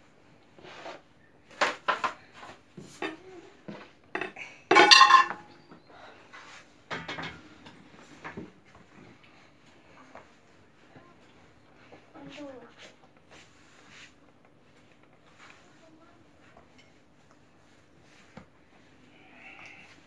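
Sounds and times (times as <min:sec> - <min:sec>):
dishes and cutlery clinking: 0:04.2 - 0:05.6, 0:06.9 - 0:07.8
ringing dish clatter: 0:04.7 - 0:05.6.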